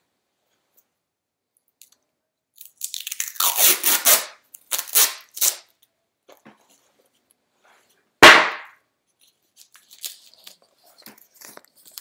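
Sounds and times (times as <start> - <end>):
tape ripping off roll: 3.0 - 5.7.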